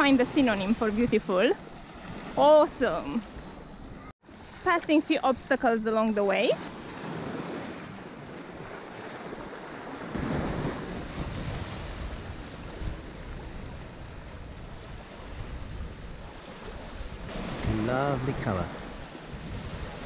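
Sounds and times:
small waves washing on shore: 0.0s - 20.0s
wind on microphone: 6.4s - 20.0s.

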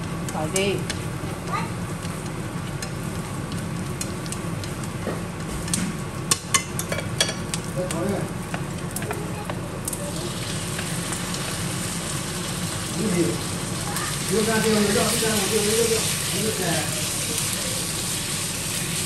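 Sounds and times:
aromatics sizzling in oil: 0.0s - 19.0s
chopsticks clicking against pan: 0.2s - 1.0s, 2.0s - 5.0s.

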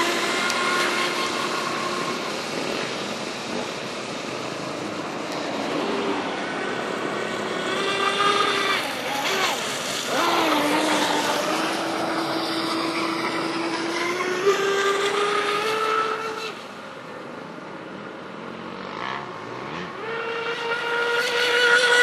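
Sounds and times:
water spray hiss: 0.0s - 16.7s
electric motor whine of rc boat: 0.0s - 16.8s, 20.0s - 22.0s.

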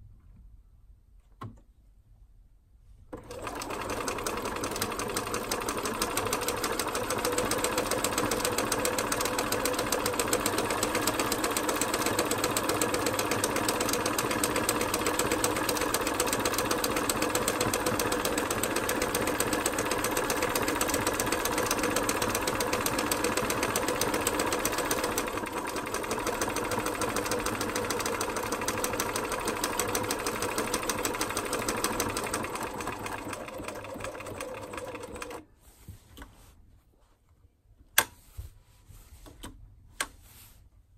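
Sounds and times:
sewing machine stitching clatter: 3.2s - 35.4s.

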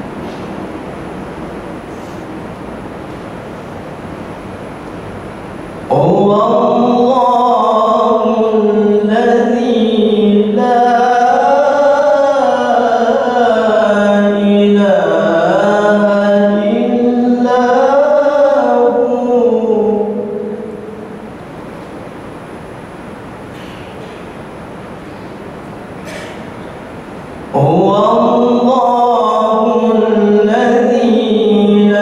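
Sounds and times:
man chanting recitation: 5.9s - 21.1s, 27.5s - 32.0s.

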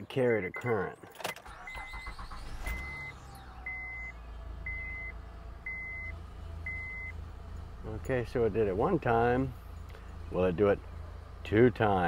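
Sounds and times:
dashboard warning chime beeping: 0.0s - 9.0s
car engine starting and idling: 0.7s - 12.0s.

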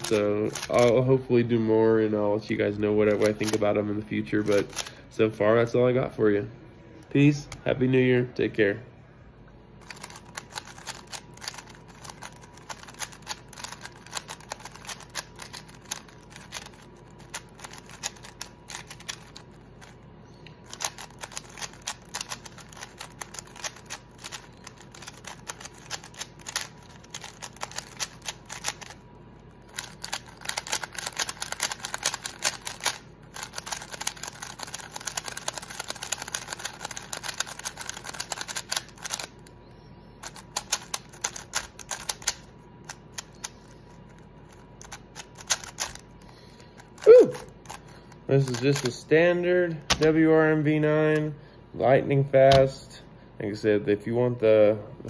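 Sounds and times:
puzzle cube plastic clicks: 0.0s - 1.0s, 3.0s - 3.7s, 4.4s - 4.9s, 9.8s - 20.0s, 20.6s - 29.0s, 29.7s - 39.4s, 40.2s - 46.2s, 47.6s - 49.0s.

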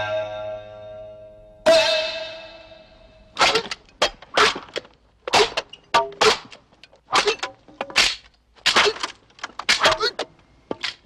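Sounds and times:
sword slicing bamboo: 3.4s - 9.1s.

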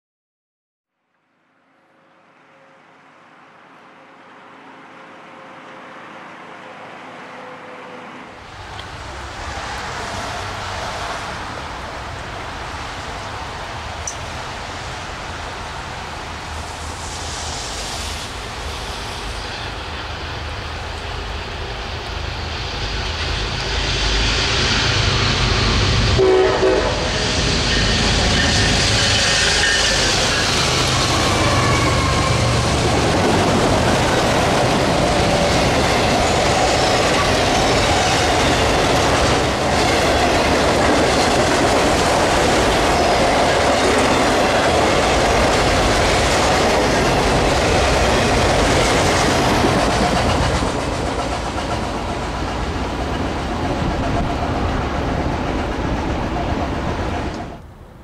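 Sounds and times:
train horn note: 1.6s - 8.6s, 26.0s - 32.8s
diesel locomotive engine: 2.0s - 58.0s
train wheels clattering on rails: 27.2s - 57.6s.

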